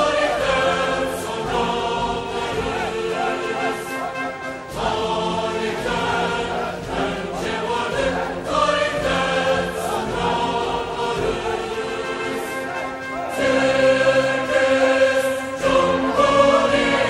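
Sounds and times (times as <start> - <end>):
many voices singing: 0.0 - 17.0.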